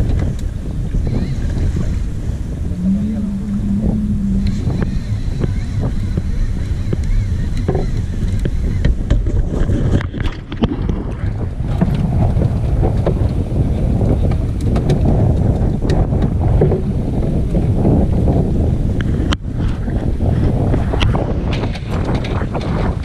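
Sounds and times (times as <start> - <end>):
choppy sea against hull: 0.0 - 23.0
wind buffeting microphone: 0.0 - 23.0
water splashes: 1.2 - 13.4.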